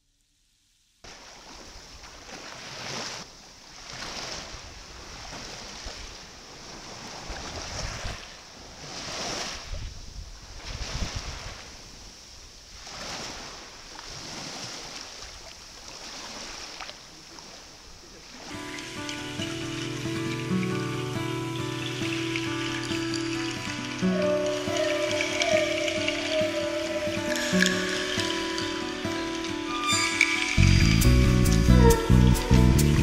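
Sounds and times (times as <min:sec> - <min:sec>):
small waves washing ashore: 0:01.0 - 0:32.5
wind rumbling on microphone: 0:03.8 - 0:14.7.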